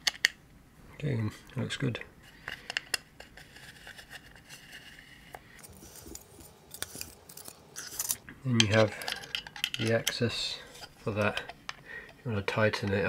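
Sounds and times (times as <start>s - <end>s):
hex key turning screws: 6.0s - 10.2s
small metal parts knocking: 6.0s - 10.4s.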